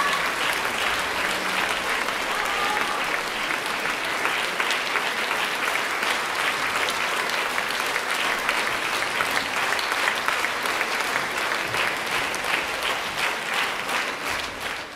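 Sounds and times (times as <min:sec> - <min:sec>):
audience applauding: 0:00.0 - 0:14.9.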